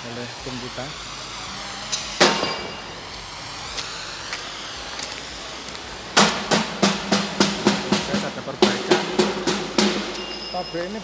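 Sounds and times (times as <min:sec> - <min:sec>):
steady workshop hiss: 0:00.0 - 0:11.0
hammer ringing on steel pipe: 0:09.9 - 0:11.0.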